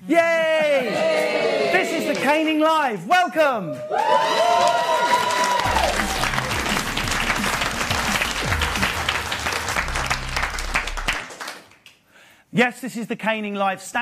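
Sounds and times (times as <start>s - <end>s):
applause: 3.9s - 12.0s
music sting with bass line: 5.7s - 11.2s.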